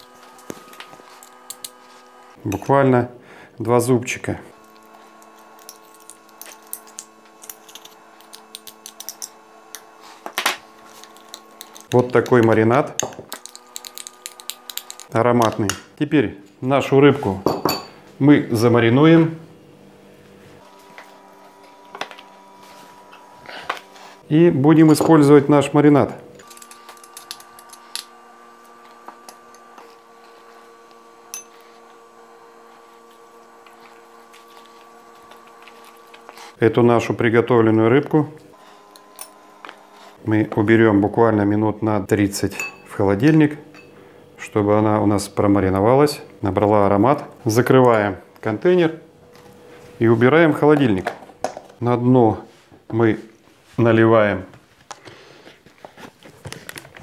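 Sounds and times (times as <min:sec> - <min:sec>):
steady tonal hum: 0:00.0 - 0:56.8
brush and spoon handling noise: 0:04.6 - 0:12.6
utensils clinking: 0:31.3 - 0:31.6, 0:42.5 - 0:43.0, 0:43.7 - 0:44.0.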